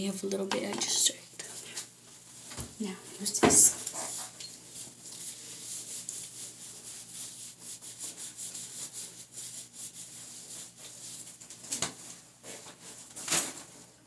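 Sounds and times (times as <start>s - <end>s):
hands rubbing wet hair: 3.8s - 11.6s.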